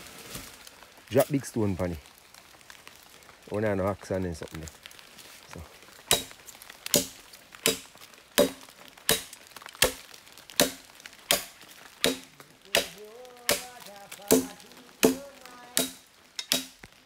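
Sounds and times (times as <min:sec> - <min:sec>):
axe chopping wet log: 0:06.1 - 0:06.3, 0:06.9 - 0:10.0, 0:10.6 - 0:16.8.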